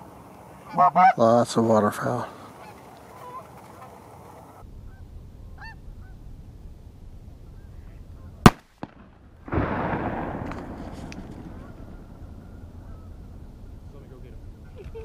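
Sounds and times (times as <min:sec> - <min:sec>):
geese honking: 0:00.5 - 0:06.2, 0:11.4 - 0:15.0
shotgun blast: 0:08.4 - 0:12.4.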